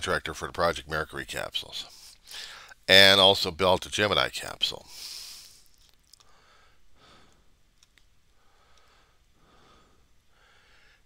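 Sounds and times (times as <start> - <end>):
man breathing into microphone: 4.9 - 7.5
small clicks: 7.3 - 8.9.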